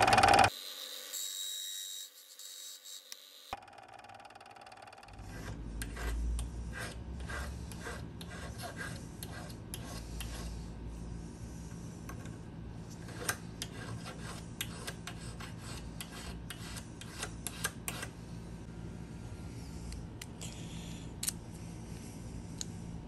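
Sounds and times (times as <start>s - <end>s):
steady low hum: 5.1s - 23.0s
hand file rasping on steel: 5.2s - 10.6s.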